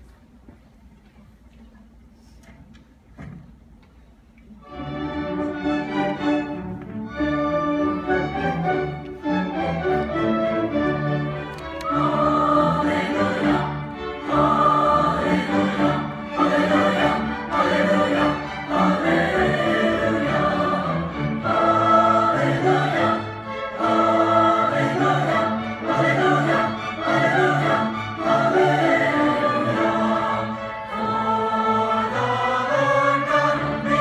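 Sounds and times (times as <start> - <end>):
orchestra strings: 0.0 - 34.0
choir singing: 7.6 - 34.0.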